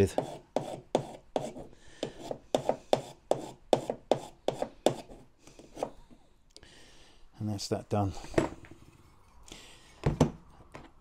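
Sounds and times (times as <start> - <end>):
hand file rasping on metal: 0.0 - 5.9.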